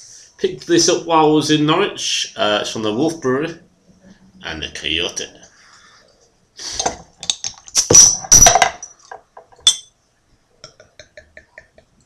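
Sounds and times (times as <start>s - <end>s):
glass bottle and glass clinking: 6.8s - 9.9s.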